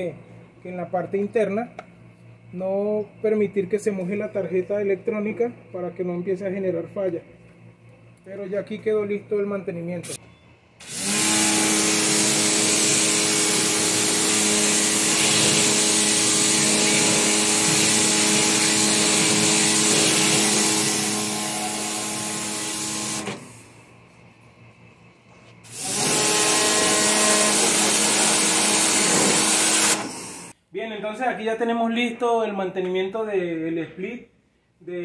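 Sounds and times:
pressure washer jet hissing on metal fins: 10.9s - 23.6s, 25.6s - 30.5s.

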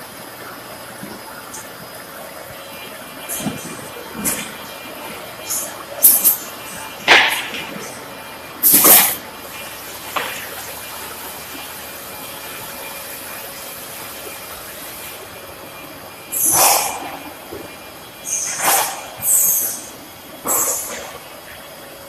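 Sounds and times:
packing line steady hiss: 0.0s - 22.0s
loud hissing blasts: 16.3s - 17.4s, 18.2s - 21.5s.

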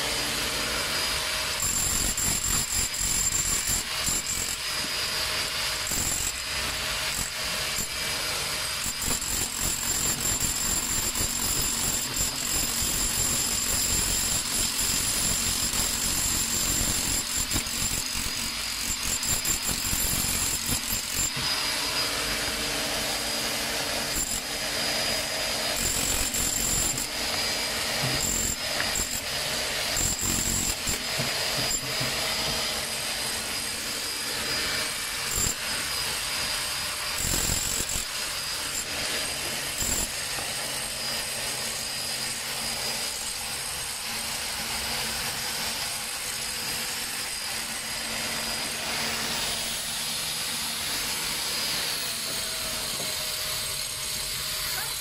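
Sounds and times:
chipping hammer on concrete: 0.2s - 21.6s, 22.4s - 34.2s, 34.8s - 44.5s.

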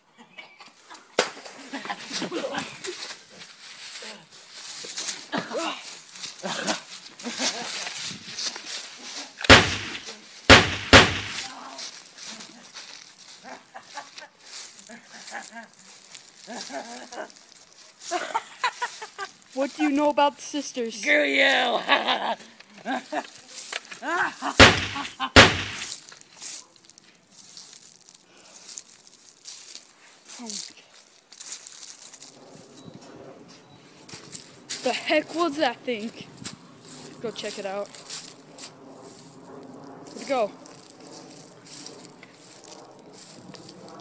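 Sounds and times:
loud sharp bangs: 9.5s - 11.5s, 24.6s - 25.9s.

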